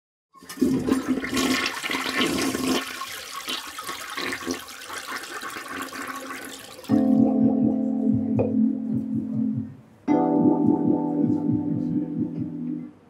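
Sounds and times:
toilet flushing: 0:00.4 - 0:06.9.

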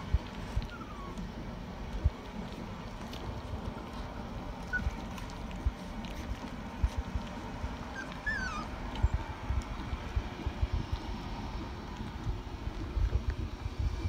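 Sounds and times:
puppies whimpering: 0:00.3 - 0:01.3, 0:04.6 - 0:09.3.

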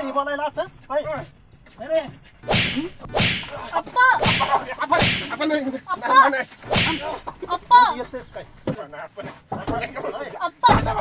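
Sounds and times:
sharp slaps: 0:02.5 - 0:05.5, 0:06.6 - 0:07.3.

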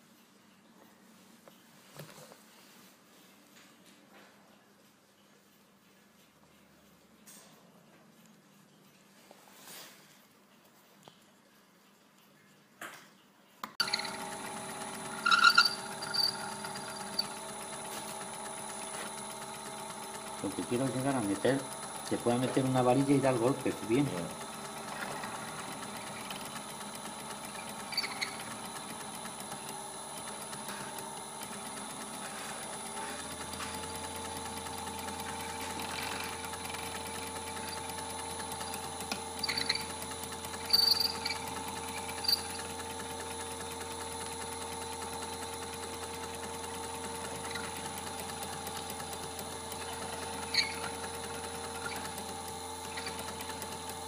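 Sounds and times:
rotary handpiece whining: 0:13.8 - 0:54.0.

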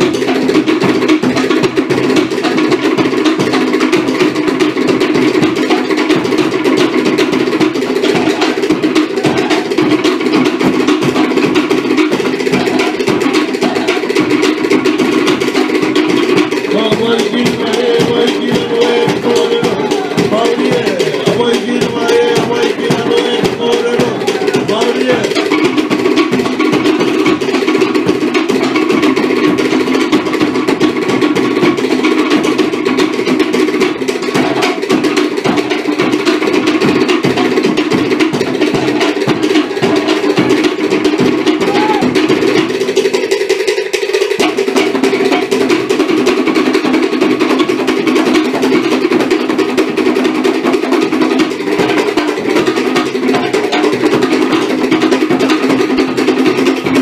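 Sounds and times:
slit drums struck with sticks: 0:00.0 - 0:42.7
larger drums beneath: 0:00.0 - 0:57.0.

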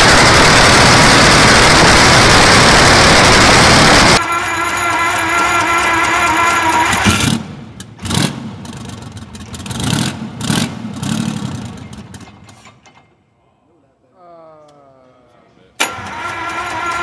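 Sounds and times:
starter whine: 0:00.0 - 0:08.0, 0:15.8 - 0:17.0
diesel engine firing unevenly: 0:00.0 - 0:12.4, 0:15.8 - 0:17.0.

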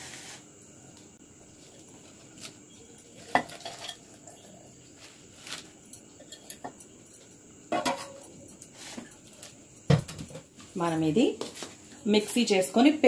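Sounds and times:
clinks and knocks on steel jar: 0:03.2 - 0:04.5, 0:07.7 - 0:08.6.

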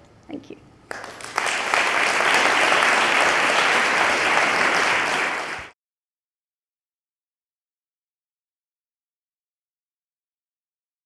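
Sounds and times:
audience applauding: 0:00.9 - 0:05.8.

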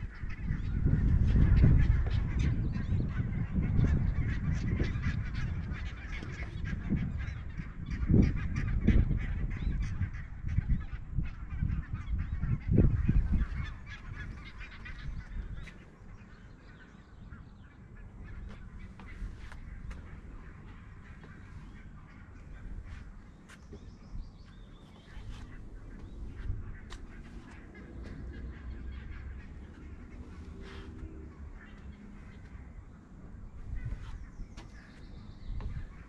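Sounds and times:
geese honking: 0:00.0 - 0:36.0
wind buffeting microphone: 0:00.0 - 0:36.0.

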